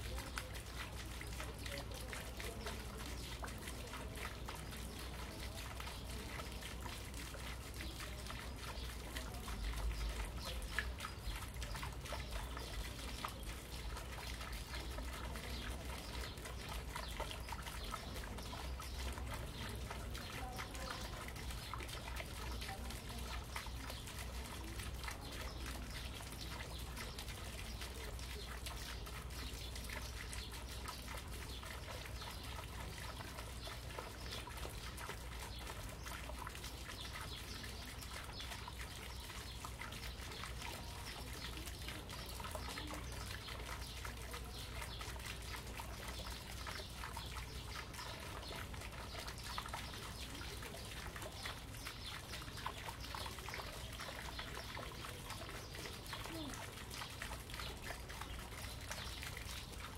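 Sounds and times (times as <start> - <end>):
fountain trickling into pond: 0.0 - 59.9.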